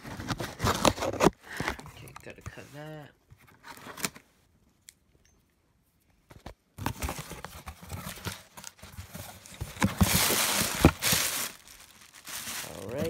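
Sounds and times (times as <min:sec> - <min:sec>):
cardboard flaps scraping: 0:06.8 - 0:13.0
packing rustling: 0:06.8 - 0:13.0.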